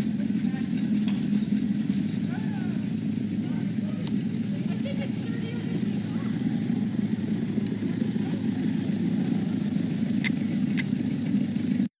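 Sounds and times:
vehicle engine running: 0.0s - 11.9s
sharp clicks: 10.2s - 11.0s.

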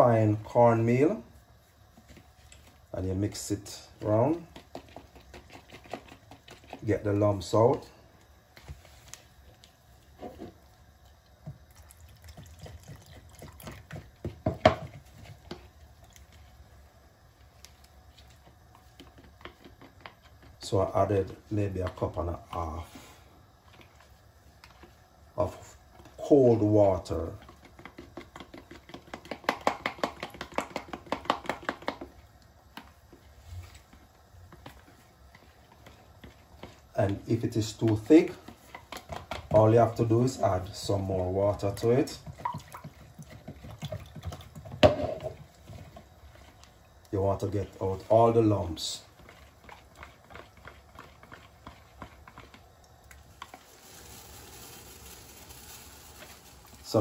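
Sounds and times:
spoon stirring in plastic jug: 1.9s - 16.7s, 17.4s - 57.0s
water pouring: 11.7s - 13.8s, 52.8s - 57.0s.

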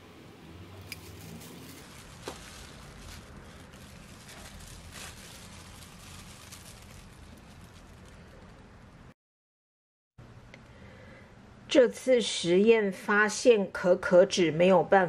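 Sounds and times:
plastic gloves crinkling: 0.8s - 9.1s.

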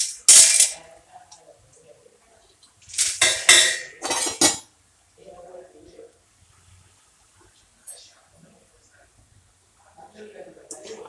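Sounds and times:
metal utensil scraping a pan: 3.0s - 4.6s.

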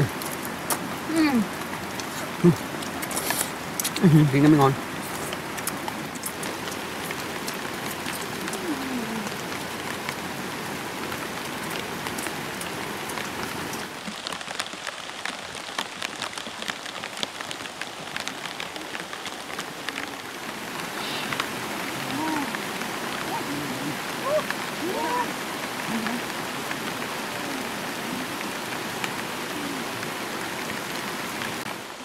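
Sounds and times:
raindrop ticks: 0.0s - 10.3s, 10.9s - 23.4s
rain hissing: 0.0s - 32.0s.

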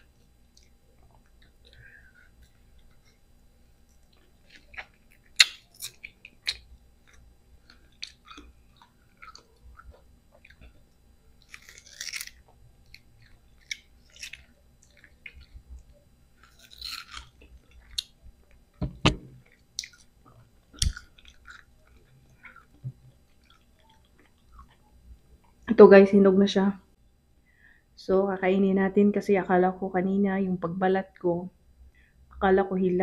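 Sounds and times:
wet smacking chewing: 3.9s - 18.7s, 19.4s - 25.7s
crisp biting: 4.0s - 18.2s, 20.7s - 24.8s.

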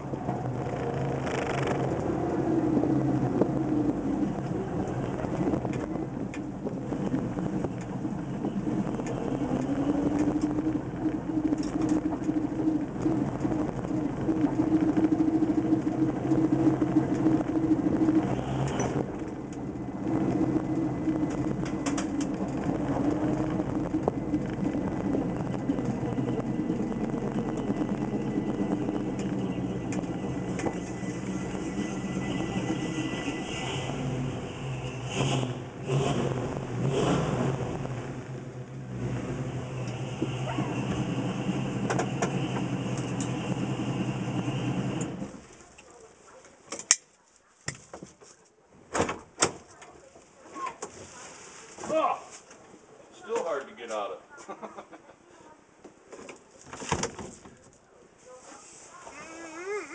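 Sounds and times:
car engine running: 0.0s - 45.7s.

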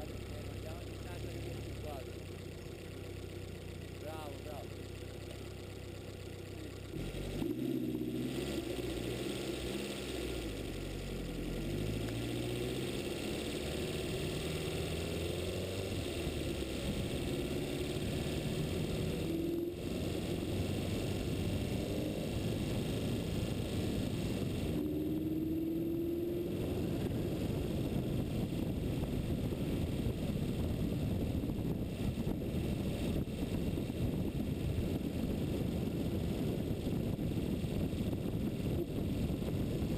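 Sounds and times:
vehicle engine: 0.0s - 39.9s
wind on microphone: 16.6s - 39.9s.

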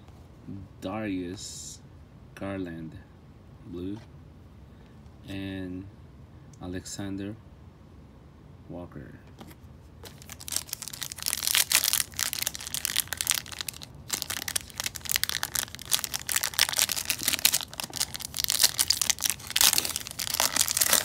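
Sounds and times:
foil wrapper crinkling: 10.0s - 21.0s.

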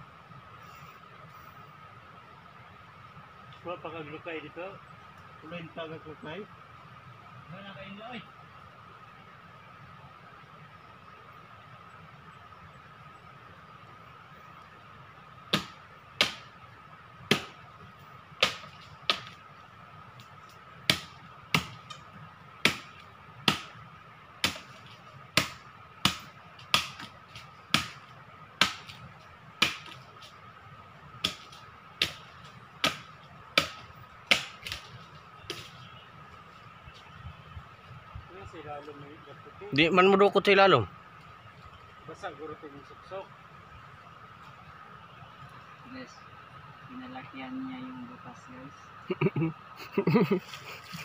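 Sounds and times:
machete chopping into tree trunk: 15.5s - 16.5s, 17.3s - 17.6s, 18.4s - 19.4s, 20.9s - 22.0s, 22.6s - 23.8s, 24.4s - 28.0s, 28.6s - 29.0s, 29.6s - 30.0s, 31.2s - 34.9s, 35.5s - 35.8s.

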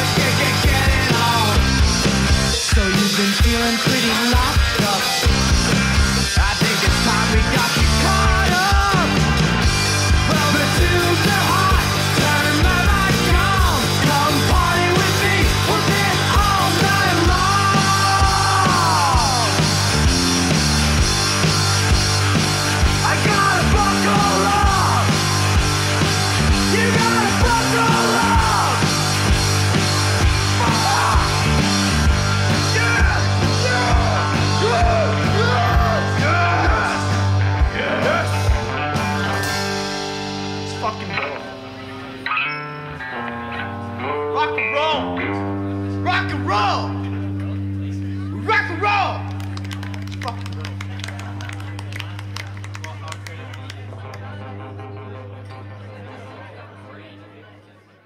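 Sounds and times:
steady drum beat: 0.0s - 40.8s
punk rock band playing: 0.0s - 56.3s.

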